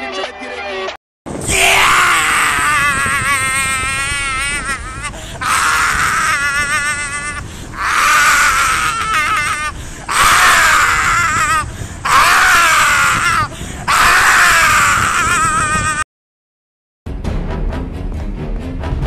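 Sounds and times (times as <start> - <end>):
man screaming: 1.5 - 16.1.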